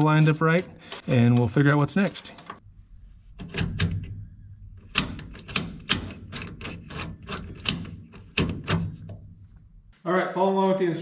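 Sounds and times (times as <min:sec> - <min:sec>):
low steady hum: 0:02.4 - 0:08.2.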